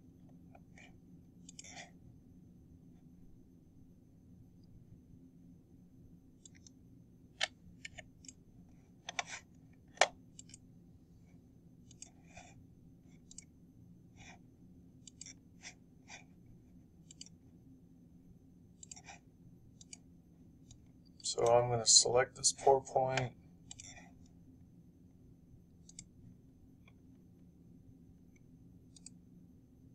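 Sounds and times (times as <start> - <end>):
faint low hum: 0.0 - 29.9
computer mouse clicking: 0.3 - 1.9, 6.4 - 6.8, 7.4 - 8.4, 9.0 - 10.6, 11.8 - 13.6, 15.0 - 16.2, 17.0 - 17.4, 18.8 - 21.2, 23.2 - 24.3, 25.8 - 26.2, 28.3 - 29.2.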